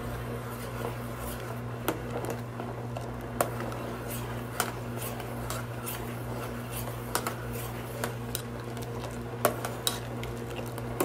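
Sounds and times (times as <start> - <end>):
steady low hum: 0.0 - 11.0
metal spoon scraping a pan: 9.6 - 10.1.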